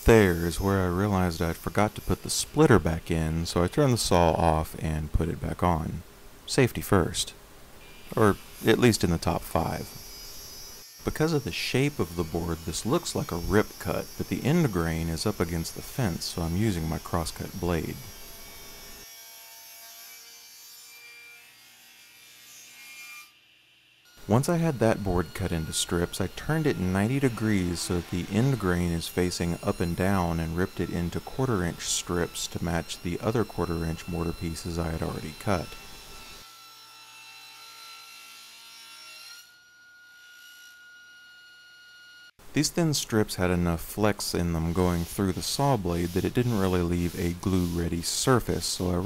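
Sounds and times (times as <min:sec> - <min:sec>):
table saw blade hissing in wood: 0:09.6 - 0:15.8, 0:44.2 - 0:49.0
saw blade cutting wood hiss: 0:44.0 - 0:49.0.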